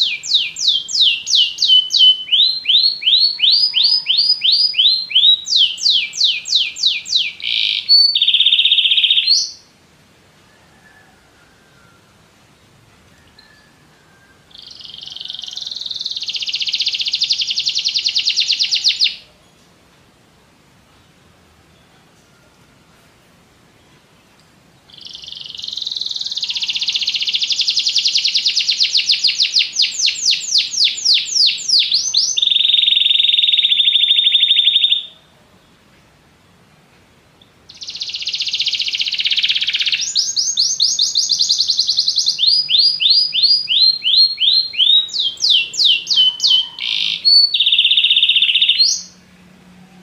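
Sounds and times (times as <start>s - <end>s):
canary singing trills: 0.0s - 9.7s, 13.2s - 19.6s, 24.8s - 35.3s, 37.4s - 50.0s.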